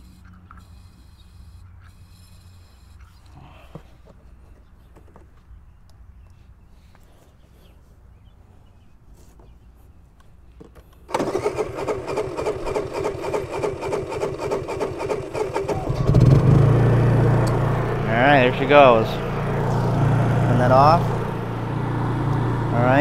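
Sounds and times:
generator engine cranking: 11.1s - 23.0s
generator engine running: 11.1s - 23.0s.

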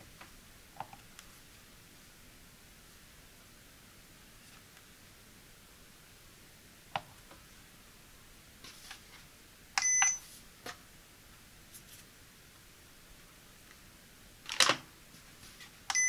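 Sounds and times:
short electronic beep: 9.8s - 10.2s.

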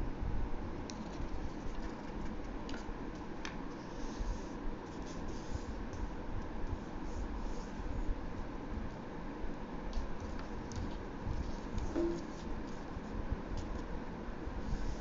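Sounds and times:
paper rustling and sliding: 10.2s - 13.9s.

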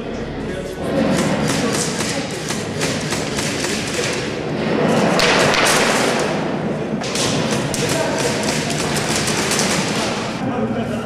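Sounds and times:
airsoft guns firing: 1.1s - 4.4s, 5.2s - 10.4s.

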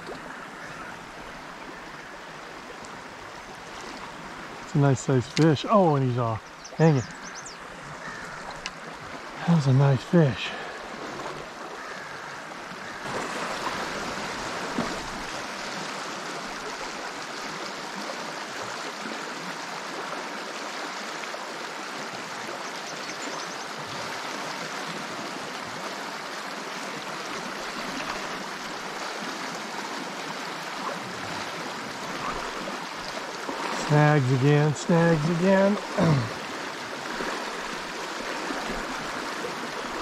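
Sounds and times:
river current rushing: 0.0s - 40.0s.

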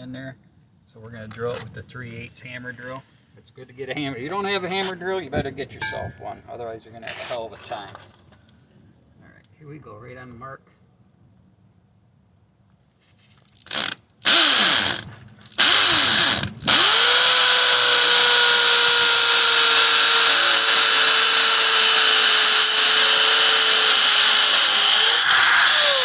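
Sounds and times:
hammer drill boring into concrete: 13.6s - 26.0s.

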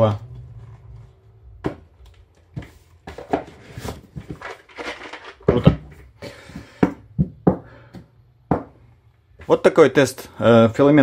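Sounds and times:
cardboard lid rustling: 2.5s - 6.0s.

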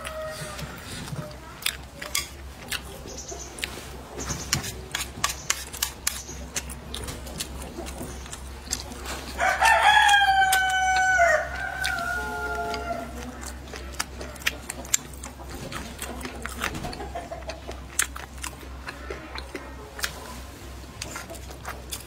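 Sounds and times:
rooster crowing: 0.0s - 0.9s, 9.3s - 13.3s.

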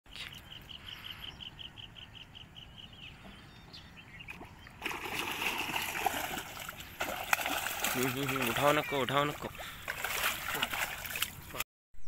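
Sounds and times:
fish splashing at surface: 4.8s - 11.5s.

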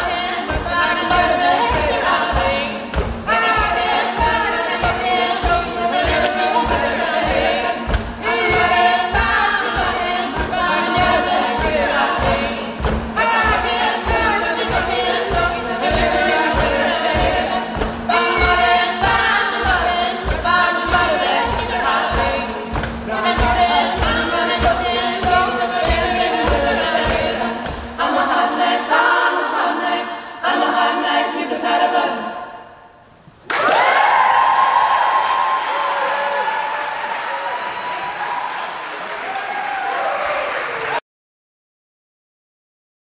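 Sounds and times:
a cappella group singing: 0.0s - 33.0s
applause: 33.5s - 41.0s.

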